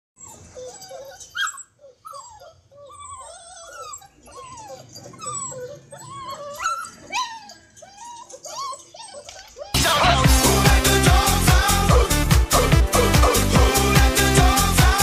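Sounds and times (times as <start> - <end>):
puppies whining and yipping: 0.2 - 9.8.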